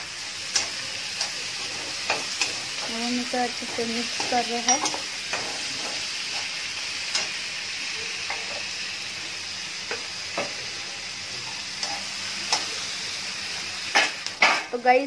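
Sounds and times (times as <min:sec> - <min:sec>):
vegetables sizzling in hot oil: 0:00.0 - 0:15.0
metal spoon scraping a pan: 0:00.5 - 0:06.5.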